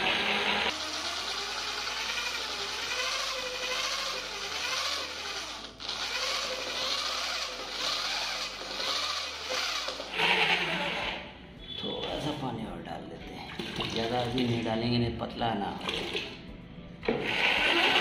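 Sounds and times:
drill with paddle mixer churning paint: 0.0s - 11.3s, 17.0s - 18.0s.

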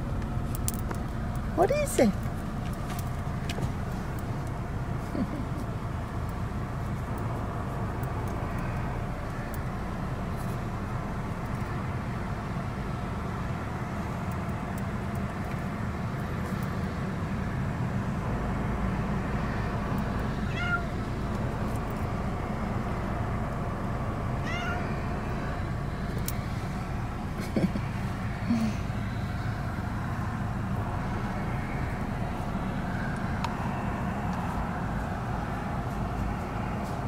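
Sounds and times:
car interior rumble: 0.0s - 37.0s
cat meowing: 20.4s - 21.1s, 24.4s - 25.0s.

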